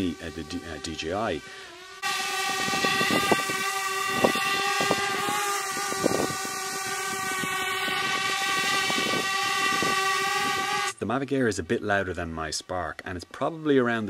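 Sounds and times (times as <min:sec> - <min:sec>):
drone propellers whining buzz: 0:00.0 - 0:11.0.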